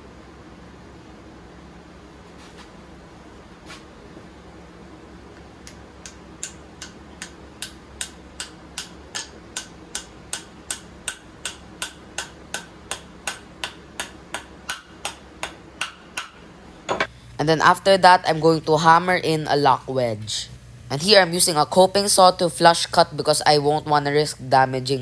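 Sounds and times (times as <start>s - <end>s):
hammer tapping wooden wedge: 5.7s - 17.1s.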